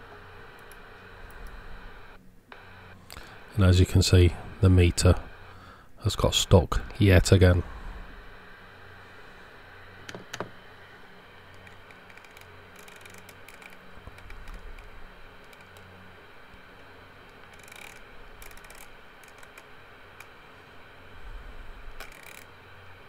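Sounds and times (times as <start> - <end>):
low hum: 0.0 - 23.0
radio static hiss: 0.0 - 23.0
sharp clicks: 17.3 - 20.4.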